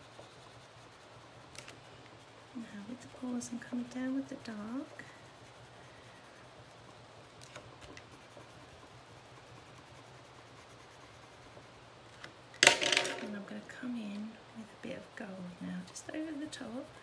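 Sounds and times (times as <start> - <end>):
pencil scratching on card: 0.2 - 6.8, 7.4 - 11.8, 14.8 - 17.0.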